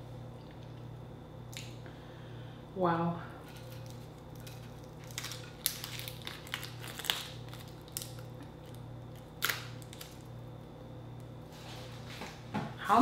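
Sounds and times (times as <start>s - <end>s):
shrimp shell cracking: 3.5s - 10.3s.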